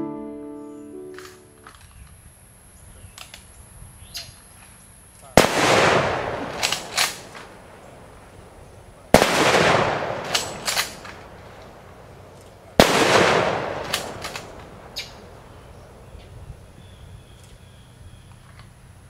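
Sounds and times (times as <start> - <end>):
rifle volley with echo: 5.4 - 16.0
rifle actions clicking: 5.8 - 7.6, 9.2 - 15.5.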